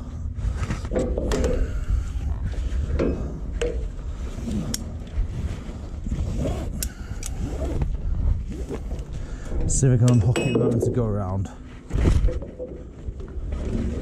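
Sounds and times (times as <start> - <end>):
strap webbing scraping: 4.0 - 9.4.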